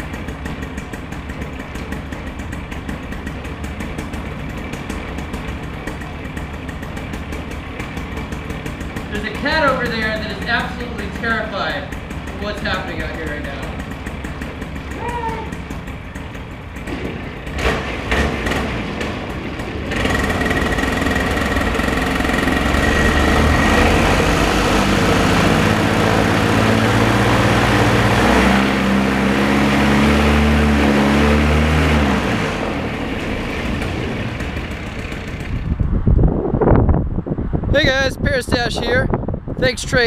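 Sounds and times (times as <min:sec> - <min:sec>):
two-stroke engine and propeller: 0:00.0 - 0:40.0.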